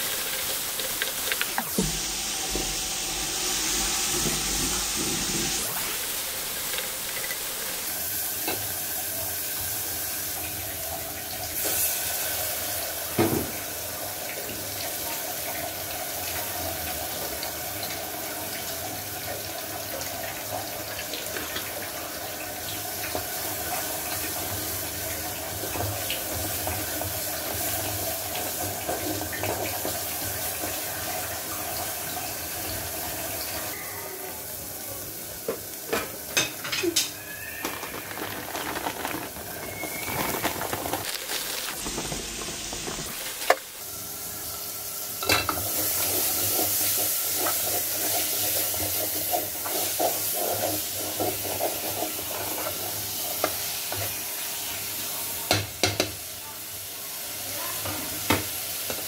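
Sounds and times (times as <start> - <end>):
masala sizzling in hot oil: 0.0 - 59.0
wooden spatula stirring: 37.2 - 43.8.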